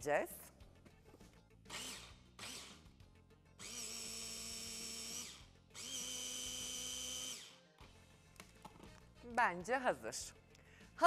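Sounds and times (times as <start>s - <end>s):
electric chopper grinding nuts: 1.7s - 2.9s, 3.6s - 7.6s.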